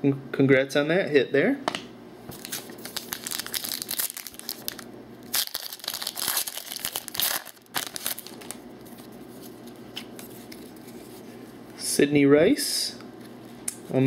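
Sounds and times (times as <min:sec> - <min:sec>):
foil pack crinkling: 0:02.3 - 0:10.8.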